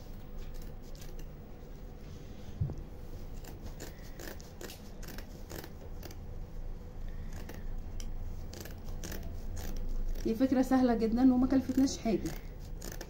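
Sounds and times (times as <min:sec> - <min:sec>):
scissors snipping fabric: 0:00.3 - 0:01.3, 0:03.3 - 0:06.2, 0:07.3 - 0:13.0.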